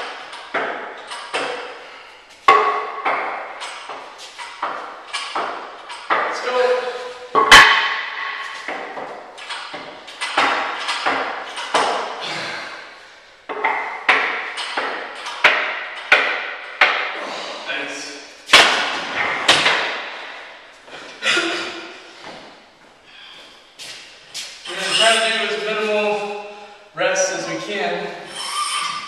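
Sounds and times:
barbell plates clanking: 0:00.0 - 0:12.3, 0:13.5 - 0:17.2.

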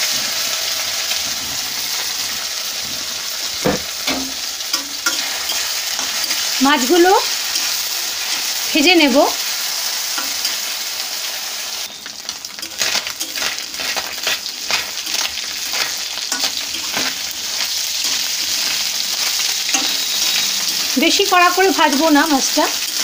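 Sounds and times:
small fish sizzling in hot oil: 0:00.0 - 0:23.0
spatula scraping a metal pan: 0:12.6 - 0:21.0.

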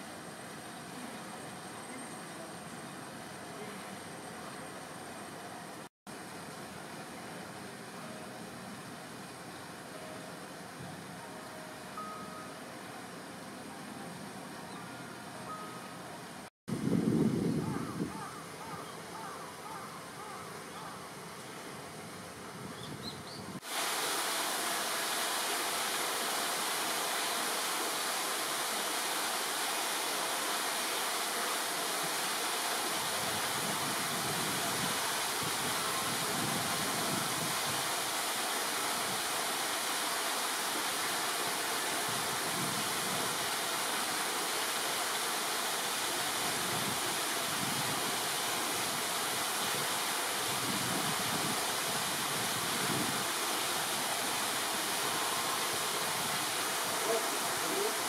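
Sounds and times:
running water rushing: 0:23.6 - 0:58.0.

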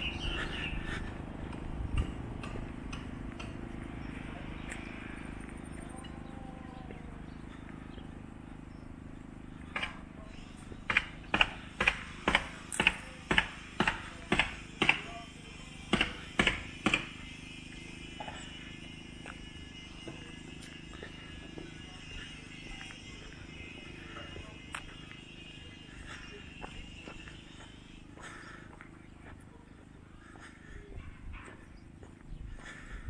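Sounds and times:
footsteps on a hard surface: 0:15.9 - 0:32.9.

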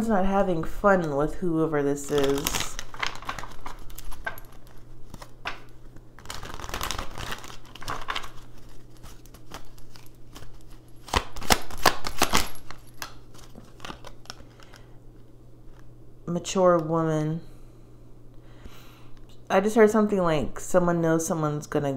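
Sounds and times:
cards rustling: 0:01.9 - 0:15.9
card snaps: 0:10.3 - 0:14.8.

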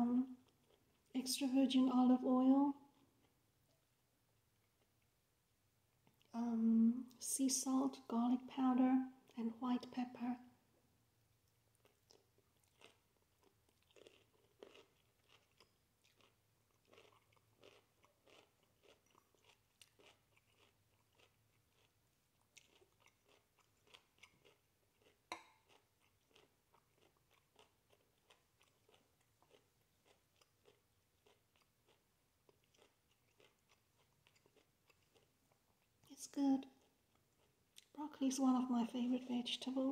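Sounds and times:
chewing broccoli: 0:11.8 - 0:38.0.

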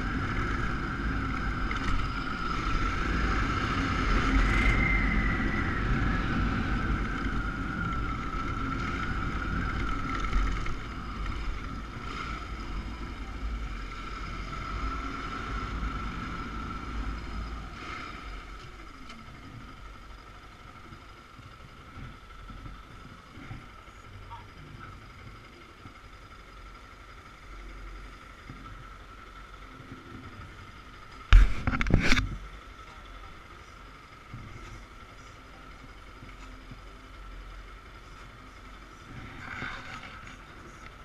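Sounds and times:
motorcycle engine running: 0:00.0 - 0:41.0
wind noise on microphone: 0:31.3 - 0:32.4.

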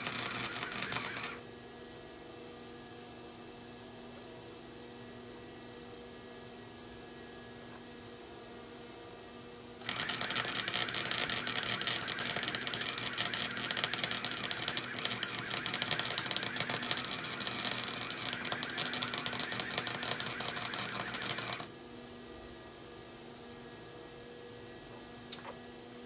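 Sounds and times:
welder arc crackling: 0:00.0 - 0:01.4, 0:09.8 - 0:21.7.

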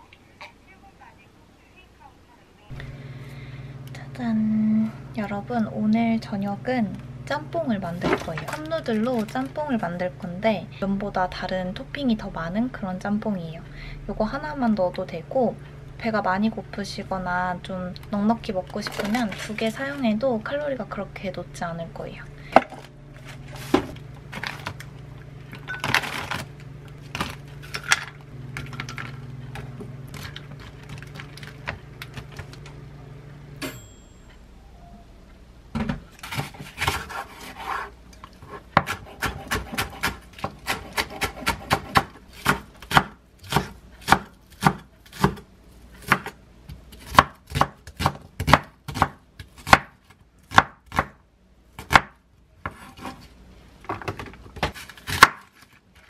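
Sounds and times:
plastic grocery bags rustling: 0:08.0 - 0:09.6, 0:30.1 - 0:32.7
knife chopping on wooden board: 0:38.7 - 0:45.4, 0:47.0 - 0:51.2, 0:51.8 - 0:53.1.

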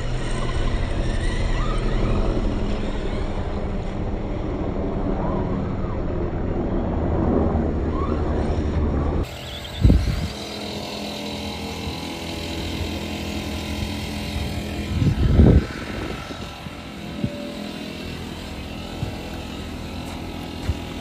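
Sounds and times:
electric toy car motor whine: 0:00.0 - 0:04.0, 0:09.2 - 0:21.0.

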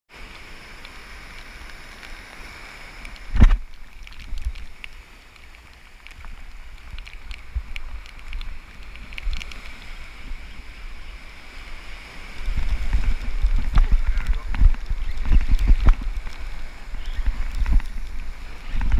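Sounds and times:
surf breaking: 0:00.6 - 0:18.9
wind buffeting microphone: 0:06.2 - 0:18.9.

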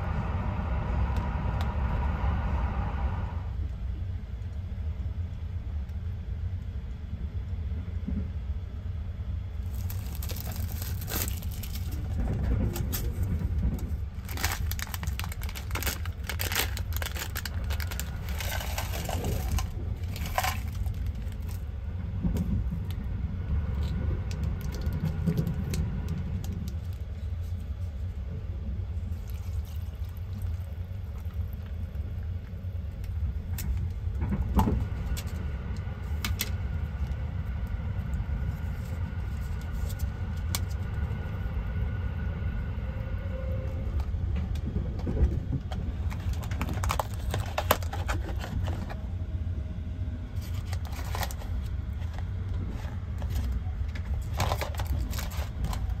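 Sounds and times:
train running low rumble: 0:00.0 - 0:56.0
food packets crinkling and tearing: 0:09.6 - 0:21.7, 0:24.4 - 0:28.0, 0:29.1 - 0:32.2, 0:46.0 - 0:49.0, 0:50.4 - 0:56.0
liquid poured into paper cup: 0:29.1 - 0:32.0.

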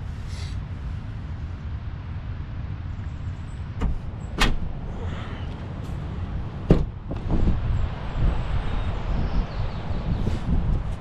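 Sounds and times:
steady low rumble: 0:00.0 - 0:11.0
latch clicks: 0:03.8 - 0:04.8
window knocks and bump: 0:03.8 - 0:04.8, 0:06.6 - 0:07.7.

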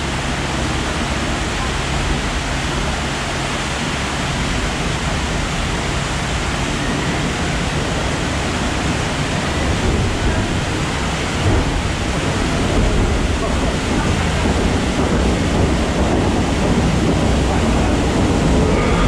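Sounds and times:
water rushing in flume: 0:00.0 - 0:19.0.

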